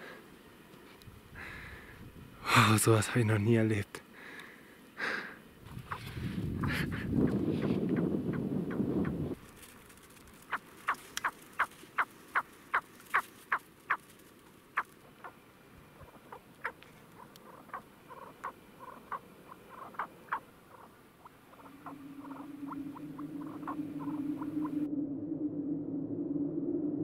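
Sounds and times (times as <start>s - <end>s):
bird clucking calls: 5.7s - 9.2s, 10.4s - 14.0s, 14.8s - 24.9s
low background music drone: 21.7s - 27.0s.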